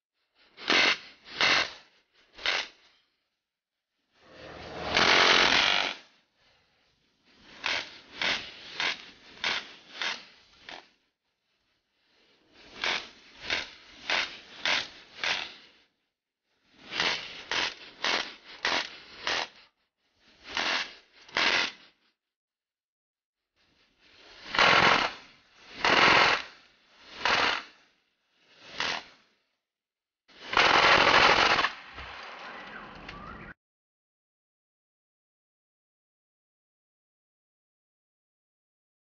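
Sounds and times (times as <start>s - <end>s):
pneumatic gun sharp pops: 0.6s - 2.9s, 5.0s - 6.0s, 7.6s - 10.9s, 12.7s - 15.7s, 16.9s - 19.6s, 20.4s - 21.9s, 24.4s - 27.8s, 28.7s - 29.2s, 30.4s - 32.4s.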